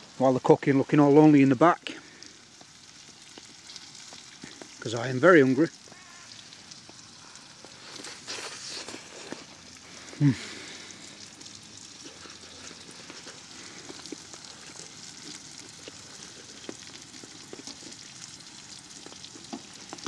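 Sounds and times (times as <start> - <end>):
steak sizzling in a frying pan: 0.0 - 20.0
small pops and clicks: 2.6 - 4.8.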